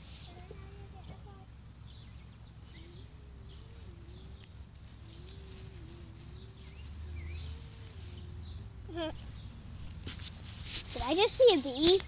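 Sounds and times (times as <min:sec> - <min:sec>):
grass rustling: 0:00.0 - 0:12.0
bird chirps: 0:01.8 - 0:09.6.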